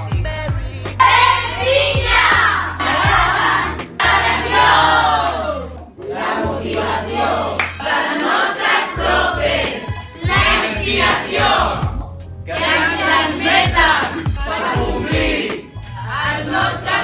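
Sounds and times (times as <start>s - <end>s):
background music with bass line: 0.0s - 17.0s
teenagers shouting in unison: 1.0s - 5.7s.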